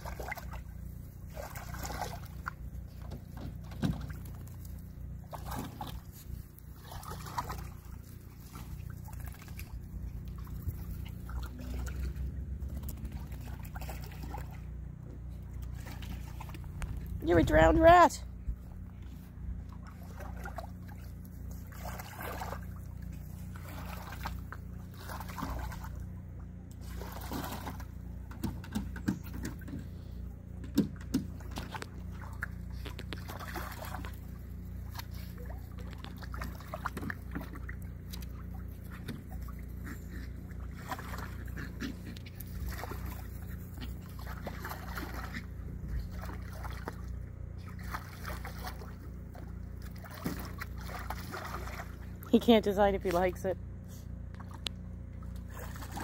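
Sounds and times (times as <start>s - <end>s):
water sloshing in kiddie pool: 0.0s - 56.0s.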